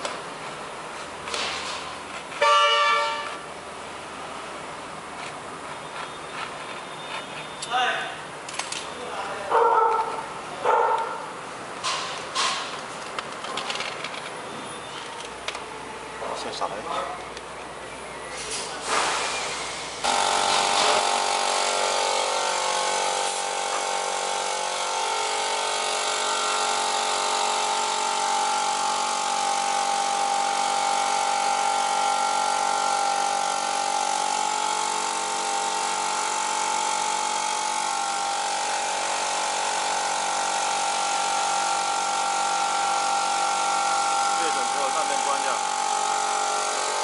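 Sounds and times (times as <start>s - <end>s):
electric motor whining hum: 19.4s - 47.0s.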